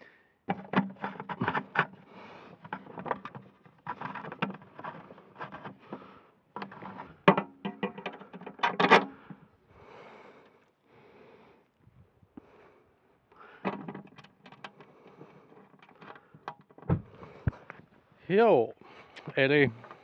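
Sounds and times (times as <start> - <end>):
clicks taps and rattles of handwork: 0.5 - 9.4, 13.6 - 17.8.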